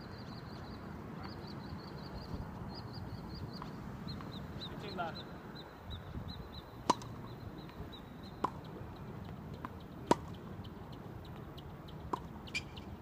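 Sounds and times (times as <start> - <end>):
racket hitting tennis ball: 6.8 - 7.2, 10.0 - 10.3.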